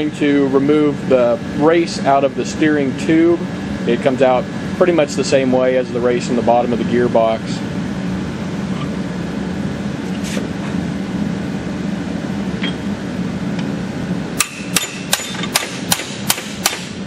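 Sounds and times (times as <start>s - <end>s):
hammer striking steel punch: 14.4s - 17.0s.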